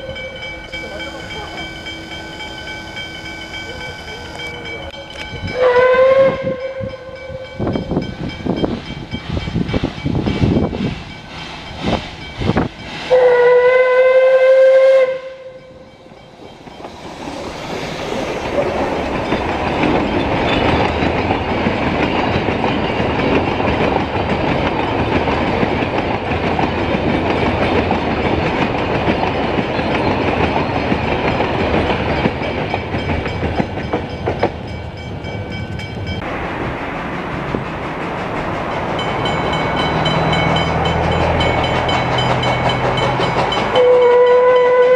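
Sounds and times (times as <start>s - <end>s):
steam locomotive chuffing: 0.0s - 44.9s
train carriages rumbling on rails: 0.0s - 44.9s
steam whistle blast: 5.5s - 7.5s, 13.1s - 15.8s, 43.7s - 44.9s.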